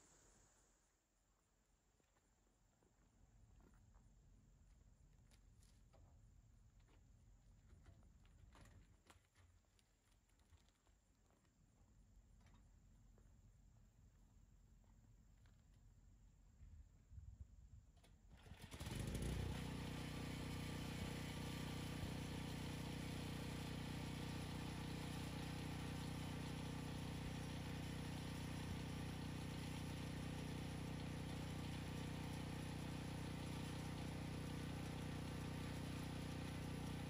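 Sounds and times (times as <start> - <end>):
pull-start cord tugs: 18.0 - 19.8
generator engine running: 18.4 - 37.0.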